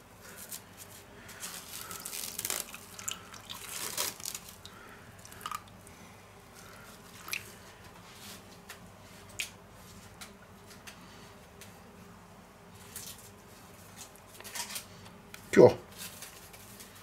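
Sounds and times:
buttermilk trickling: 1.6 - 7.8
wet squelches of raw chicken: 1.8 - 6.0, 6.6 - 7.8.

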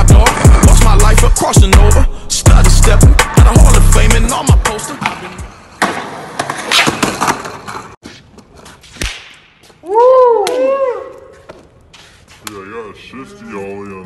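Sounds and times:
skateboard wheels rolling on concrete: 4.7 - 9.0.

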